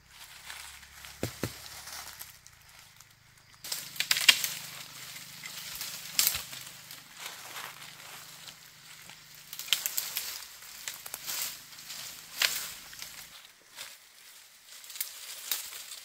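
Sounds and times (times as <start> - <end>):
dry leaves crackling and rustling: 0.0 - 16.0
machete chopping sapling: 1.1 - 2.2, 3.6 - 6.8.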